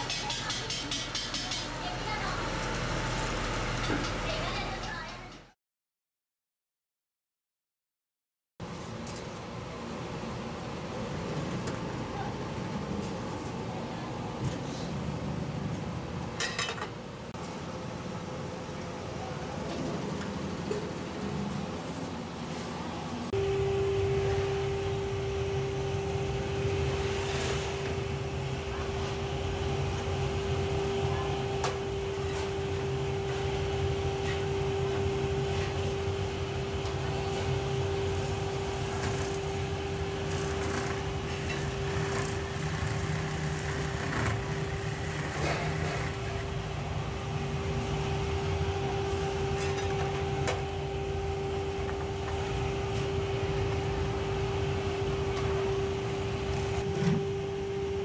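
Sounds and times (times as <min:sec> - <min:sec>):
electric motor humming: 0:37.7 - 0:48.2.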